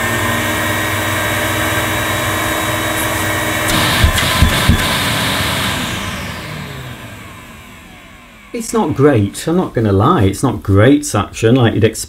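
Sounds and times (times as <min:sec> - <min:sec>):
vacuum cleaner motor running: 0:00.0 - 0:09.6.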